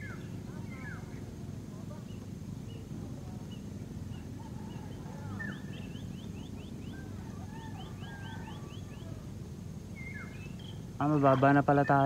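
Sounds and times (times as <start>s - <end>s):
birds chirping: 0.0s - 12.0s
whistled bird notes: 3.5s - 9.2s, 10.0s - 12.0s.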